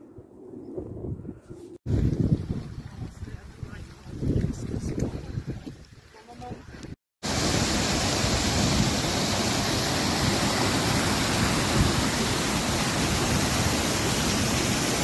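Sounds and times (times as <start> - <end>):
small waterfall rushing over rocks: 7.2 - 15.0.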